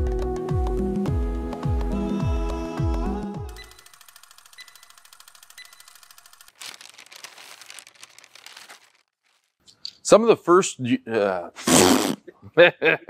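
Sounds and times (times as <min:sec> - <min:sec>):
short high beeps: 0:03.6 - 0:03.9
projector-like clatter: 0:03.6 - 0:06.6.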